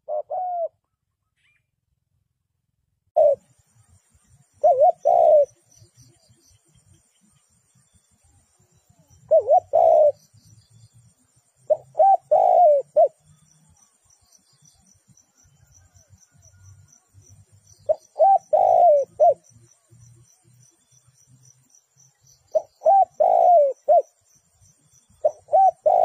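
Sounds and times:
dove cooing: 0:00.0 - 0:00.8, 0:03.2 - 0:03.5, 0:04.6 - 0:05.8, 0:09.2 - 0:10.3, 0:11.6 - 0:13.4, 0:17.9 - 0:19.5, 0:22.5 - 0:24.2, 0:25.2 - 0:26.0.

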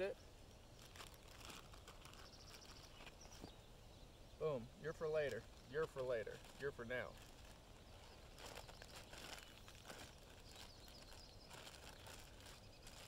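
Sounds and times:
plastic bag crinkling: 0:00.8 - 0:03.2, 0:05.2 - 0:13.0.

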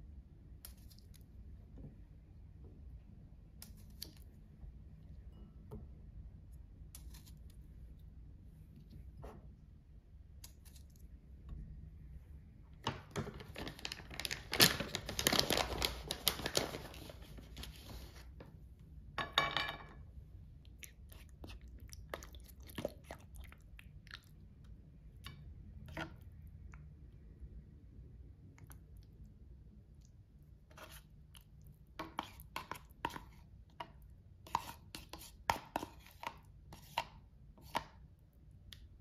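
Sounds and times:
food packaging crinkling and tearing: 0:13.1 - 0:18.2.

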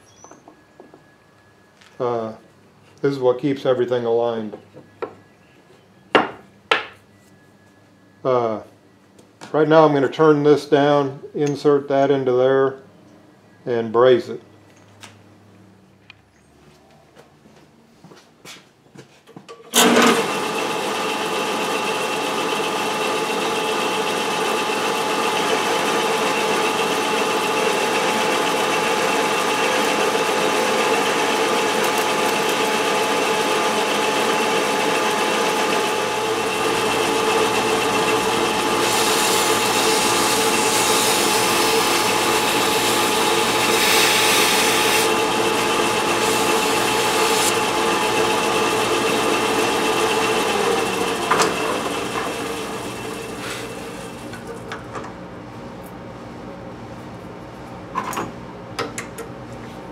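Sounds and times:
metal lathe whirring: 0:19.7 - 0:54.5.

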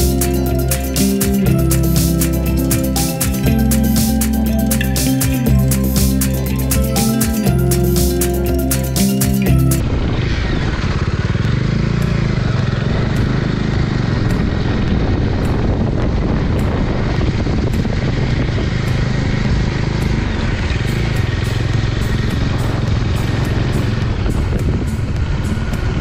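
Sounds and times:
motorcycle engine rumbling: 0:00.0 - 0:26.0
wind rush on microphone: 0:09.8 - 0:26.0.

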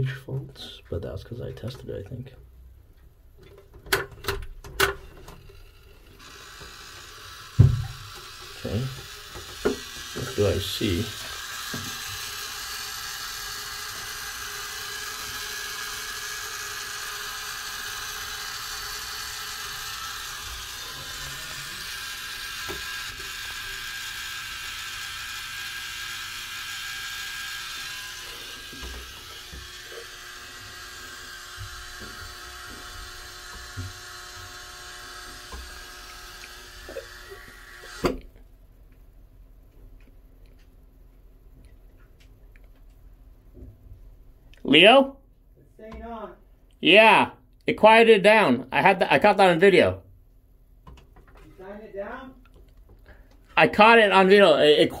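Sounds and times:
high-pitched electrical buzzing: 0:05.6 - 0:38.2.

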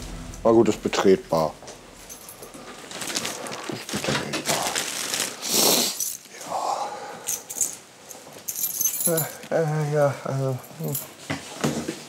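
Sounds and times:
plastic bags rustling: 0:02.1 - 0:06.4.

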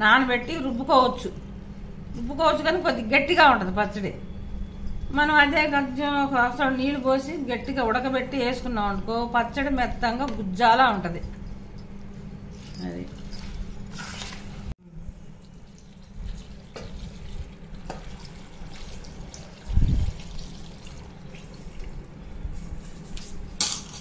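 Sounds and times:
low steady hum: 0:00.0 - 0:24.0
water pouring into a pot: 0:15.4 - 0:22.0.

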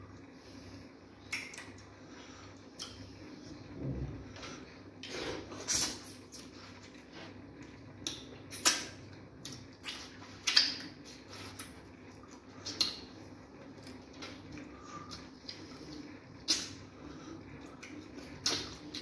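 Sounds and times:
wet mouth smacks while chewing: 0:08.0 - 0:13.1, 0:13.8 - 0:16.8, 0:17.8 - 0:19.0.

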